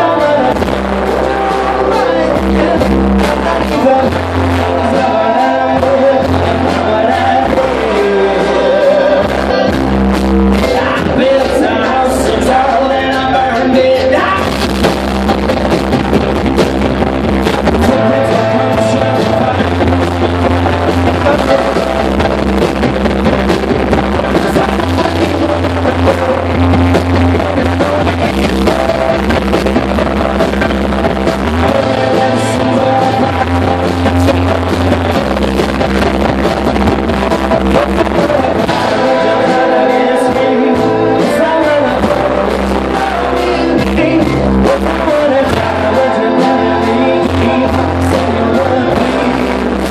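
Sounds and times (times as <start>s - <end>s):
person singing: 0.0s - 15.6s, 17.4s - 49.9s
live rock band playing: 0.0s - 49.9s.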